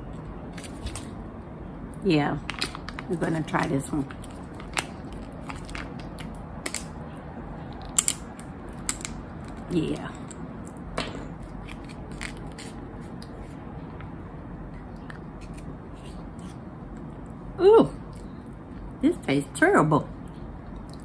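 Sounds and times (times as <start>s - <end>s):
screw cap clicks and pouch crinkles: 4.1s - 6.9s, 11.6s - 13.3s.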